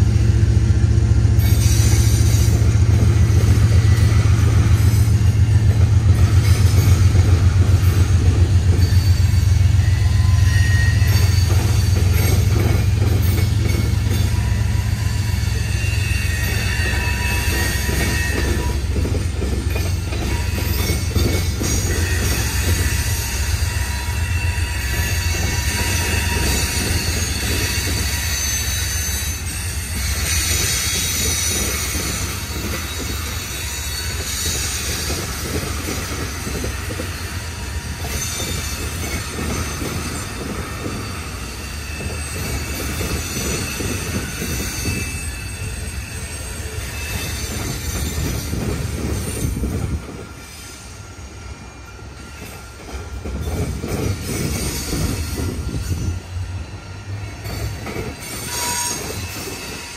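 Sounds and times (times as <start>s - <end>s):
freight train rumbling: 0.0s - 59.9s
train wheel squeal: 0.0s - 59.9s.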